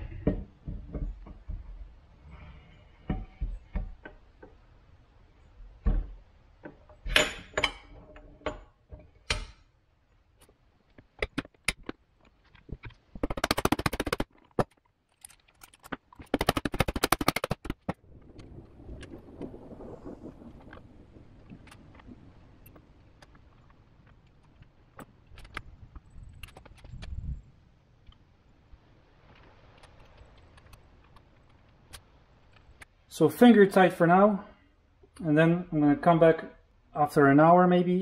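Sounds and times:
metal knocks and clunks: 0.0s - 2.1s, 2.9s - 4.7s, 5.6s - 9.8s
rapid clicking: 12.9s - 18.0s.

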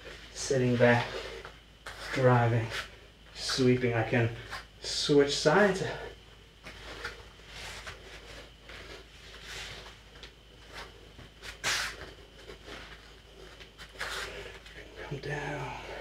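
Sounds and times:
bare feet scuffing on foam mat: 0.6s - 2.9s, 6.6s - 14.5s.

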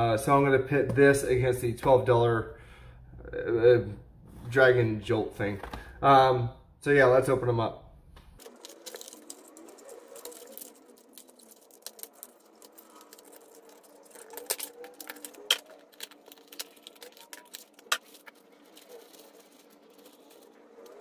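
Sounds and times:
cardboard rustling: 8.4s - 21.0s.

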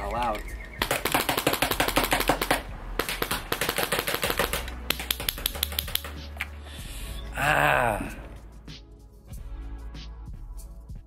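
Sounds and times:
airsoft rifle firing: 0.8s - 6.2s.

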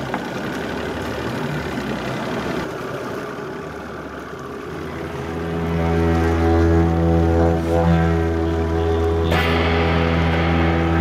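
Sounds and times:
boat engine idling: 0.0s - 11.0s
water noise: 0.0s - 11.0s
wind: 0.0s - 11.0s
music: 4.9s - 11.0s.

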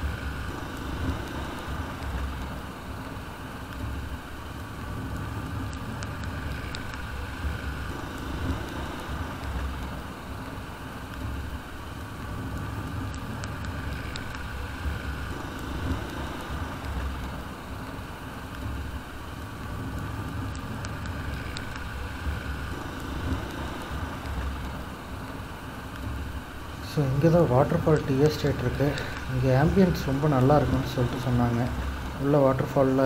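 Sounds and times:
road noise: 0.0s - 33.0s
faint ticks: 5.0s - 27.0s.

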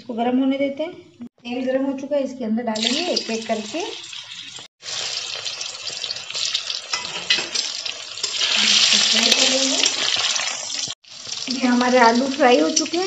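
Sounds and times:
potatoes sizzling in hot oil: 2.8s - 13.0s.

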